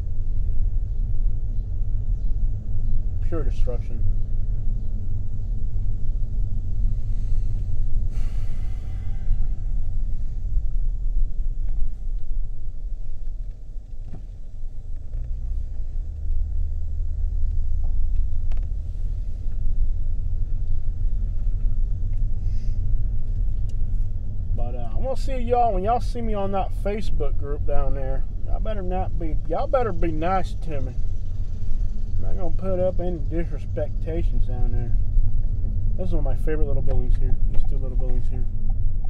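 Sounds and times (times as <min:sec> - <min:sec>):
car cabin engine and road noise: 0:00.0 - 0:39.0
short hiss: 0:07.1 - 0:09.3.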